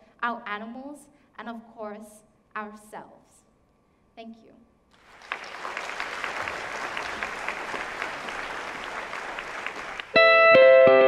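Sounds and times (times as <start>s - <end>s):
audience applauding: 5.0s - 10.2s
music with held notes: 10.2s - 11.0s.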